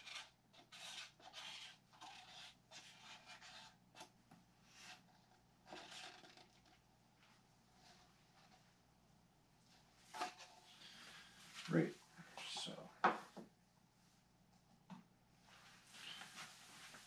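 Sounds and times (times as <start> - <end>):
hand tool scraping resin: 0.0 - 3.8.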